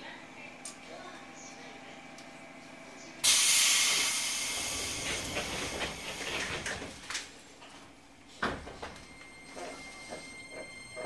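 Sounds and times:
quiet train cabin background: 0.0s - 11.0s
sliding doors thump: 4.6s - 7.0s.

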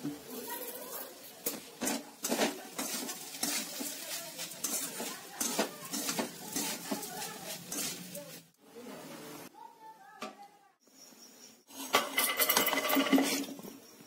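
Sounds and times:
spatula scraping metal pan: 1.8s - 8.3s.

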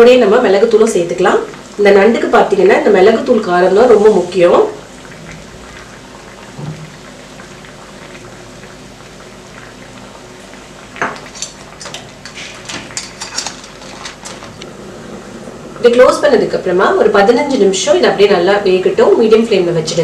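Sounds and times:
curry bubbling at a simmer: 0.6s - 15.8s.

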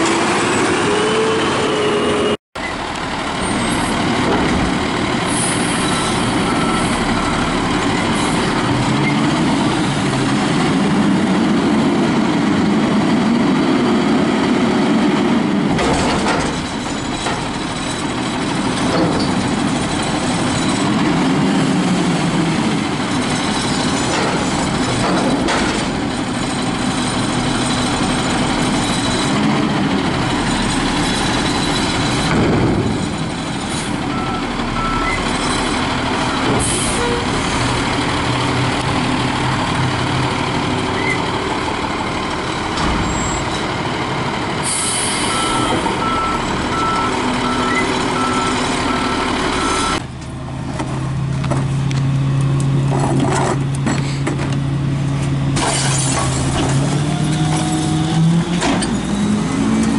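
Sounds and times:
garbage truck engine and hydraulics: 0.0s - 59.9s
air brakes hissing: 44.6s - 45.7s.

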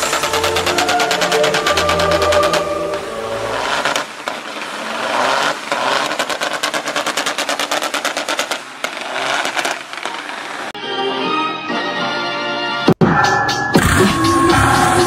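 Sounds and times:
truck diesel engine running hard: 0.0s - 10.8s
truck tyres spinning: 0.0s - 10.8s.

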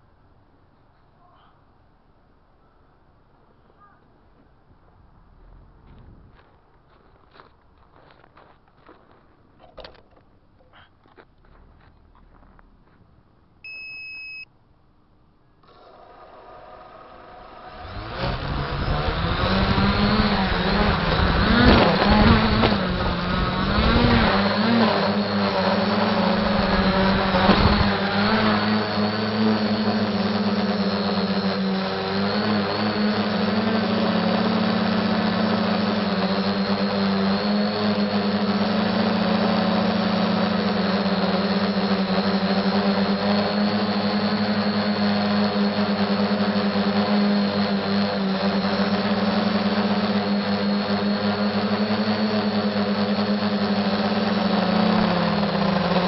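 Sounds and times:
short electronic beep: 13.6s - 14.5s
drone motors buzzing whine: 15.6s - 56.0s.

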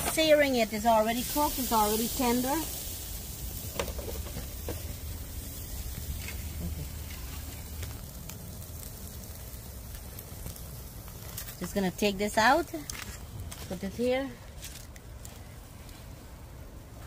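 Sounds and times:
ribs sizzling on a grill: 0.0s - 14.2s.

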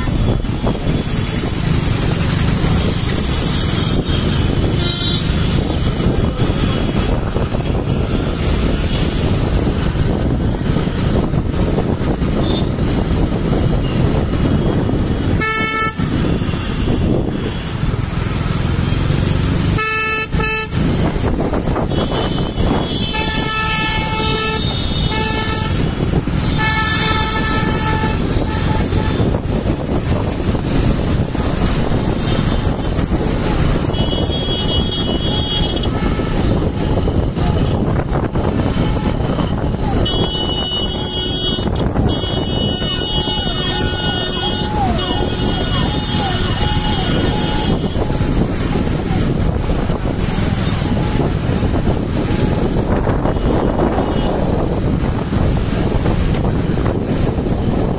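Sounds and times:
engine and road rumble: 0.0s - 57.9s
vehicle horns honking: 2.6s - 10.6s, 12.3s - 13.0s, 13.7s - 17.9s, 19.7s - 30.0s, 31.8s - 54.7s.

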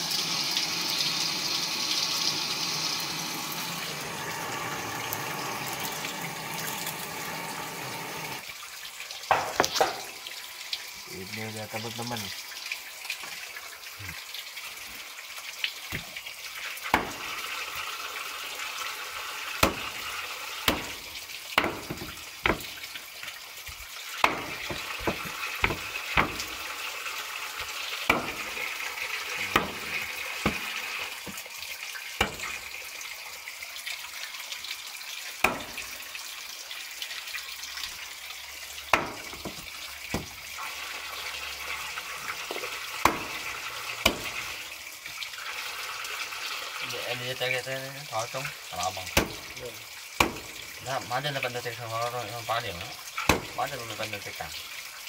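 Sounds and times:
knife chopping on wooden board: 19.6s - 20.0s, 20.7s - 21.0s, 21.6s - 22.8s, 24.2s - 26.6s, 28.1s - 28.6s, 29.5s - 30.7s, 43.0s - 43.4s, 44.0s - 44.4s, 49.2s - 49.5s, 50.2s - 50.5s, 53.2s - 53.6s.

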